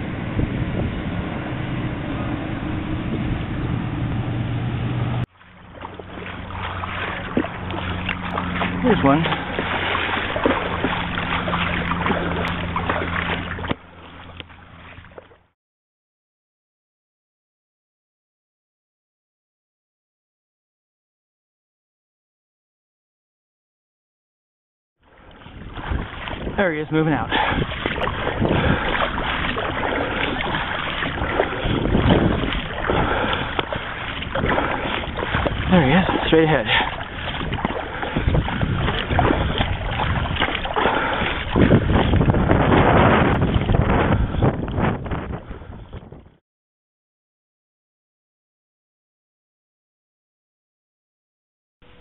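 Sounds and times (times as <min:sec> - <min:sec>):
wind noise: 0:00.0 - 0:13.8, 0:25.2 - 0:46.4
boat motor running: 0:00.0 - 0:15.5, 0:25.0 - 0:46.4
water noise: 0:00.0 - 0:15.5, 0:25.0 - 0:46.4.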